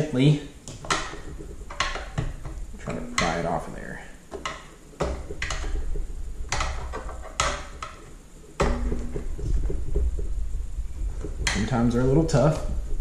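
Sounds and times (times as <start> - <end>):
low rumble: 8.7 - 13.0.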